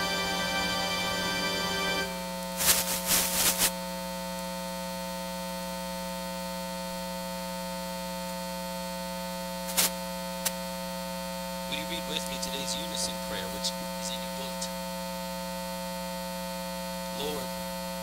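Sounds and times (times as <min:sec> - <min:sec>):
music: 0:00.0 - 0:02.3
electrical buzz from sound system: 0:00.0 - 0:18.0
short noise bursts: 0:02.0 - 0:03.8, 0:09.6 - 0:10.0.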